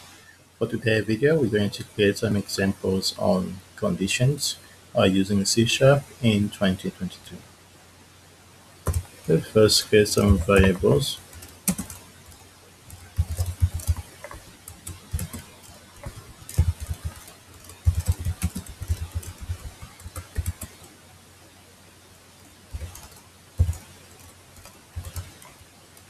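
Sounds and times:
typing on computer keyboard: 8.8 - 20.9, 22.7 - 26.0.

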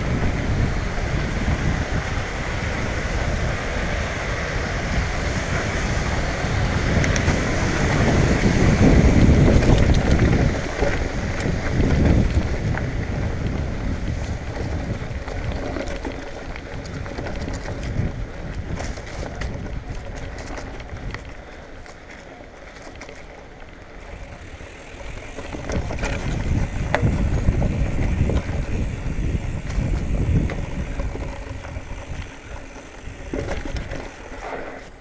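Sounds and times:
wind on microphone: 0.0 - 21.3, 24.2 - 34.4
bike clicks and rattles: 0.0 - 35.0
tyre rumble: 24.1 - 35.0.

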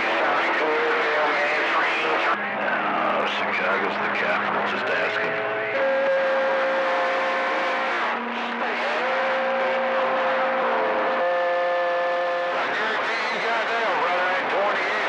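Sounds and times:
radio static hiss: 0.0 - 6.0, 12.6 - 15.0.

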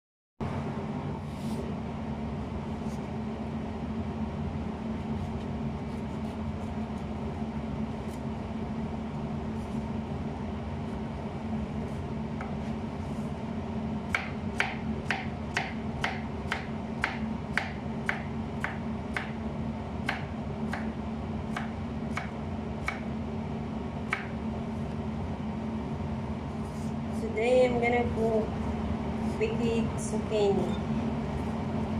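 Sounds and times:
steady hum: 0.4 - 31.9
knife chopping on cutting board: 14.1 - 19.4, 20.0 - 23.1, 24.1 - 24.4.

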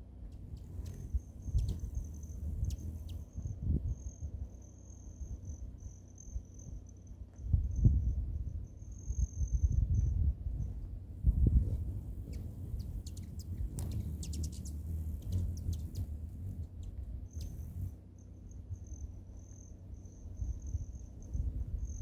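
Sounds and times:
low gusting rumble: 0.3 - 4.4, 7.5 - 18.0
cricket trilling: 0.3 - 22.0
sharp ticks: 12.3 - 17.7.

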